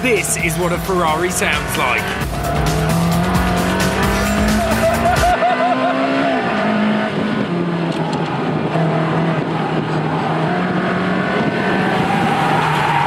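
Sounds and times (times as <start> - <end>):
sports car engine at high speed: 0.0 - 13.0
wind and road noise: 0.0 - 13.0.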